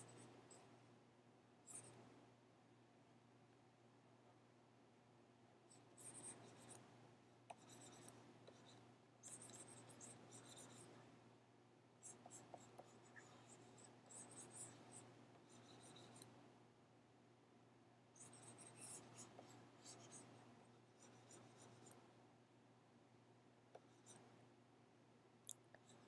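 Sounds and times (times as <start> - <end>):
stylus scratching on tablet: 0.0 - 0.7, 1.6 - 2.0, 5.7 - 6.9, 7.5 - 11.1, 12.0 - 16.4, 18.2 - 22.0, 23.8 - 24.2, 25.7 - 26.0
low steady hum: 0.0 - 26.0.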